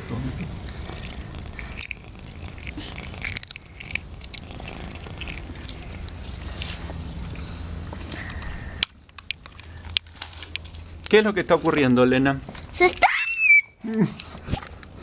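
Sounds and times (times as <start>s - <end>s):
cat chewing fish: 0.4s - 11.0s.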